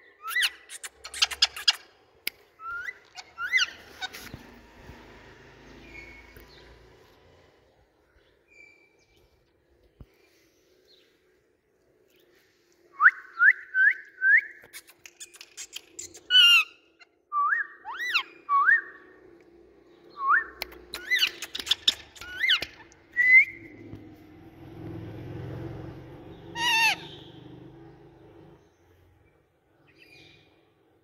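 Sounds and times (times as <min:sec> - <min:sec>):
parakeets whistling: 0:02.6 - 0:04.4, 0:26.5 - 0:27.4
parakeet clicks: 0:20.6 - 0:23.0
wavering bird call: 0:26.6 - 0:27.3.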